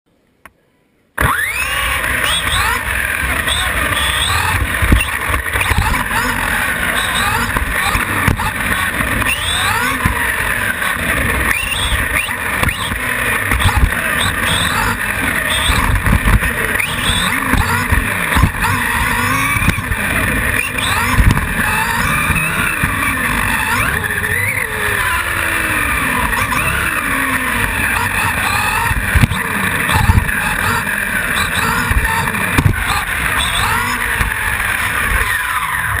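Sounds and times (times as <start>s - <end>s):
toy car motor whining: 1.2s - 36.0s
chassis knocks and rattles: 31.6s - 34.4s.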